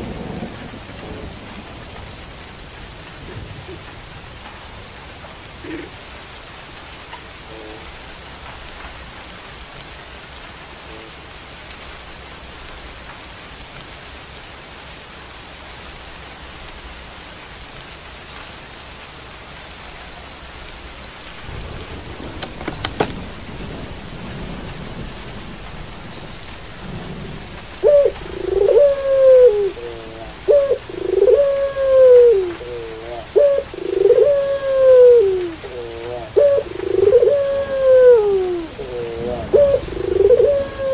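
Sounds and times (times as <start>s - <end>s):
steady rain hiss: 0.0s - 40.9s
dove cooing: 5.6s - 6.1s, 21.3s - 40.9s
low rumble: 21.1s - 31.6s
sharp knocks: 22.2s - 23.3s.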